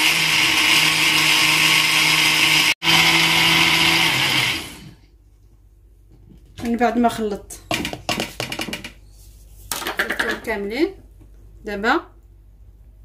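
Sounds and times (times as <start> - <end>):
blender motor whirring: 0.0 - 5.0.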